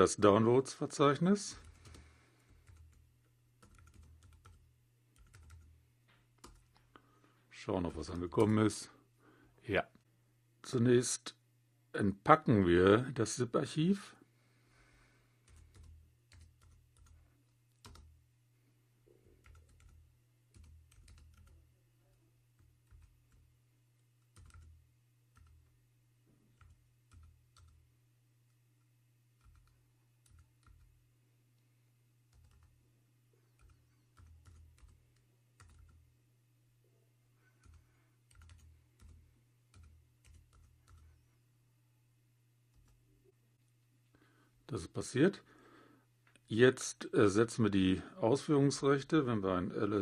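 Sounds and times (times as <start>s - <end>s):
steady low hum: 0.0s - 50.0s
computer keyboard keystrokes: 1.5s - 3.0s, 3.6s - 4.6s, 5.2s - 5.7s, 6.4s - 6.9s, 15.5s - 18.1s, 19.4s - 21.6s, 22.6s - 23.4s, 24.2s - 25.7s, 26.6s - 27.8s, 29.4s - 30.9s, 32.3s - 32.7s, 33.6s - 36.0s, 37.6s - 41.1s.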